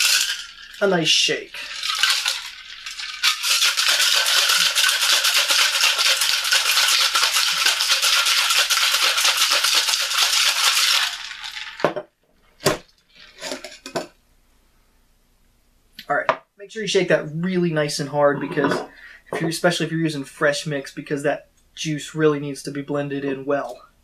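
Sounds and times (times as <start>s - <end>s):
ice rattling in cocktail shaker: 0.0s - 11.9s, 12.7s - 14.0s.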